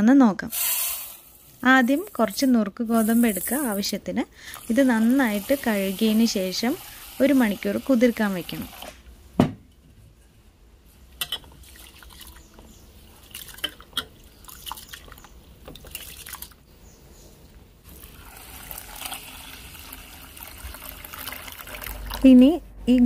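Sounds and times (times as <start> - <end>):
water pouring into pot: 4.5 - 9.0, 17.8 - 22.3.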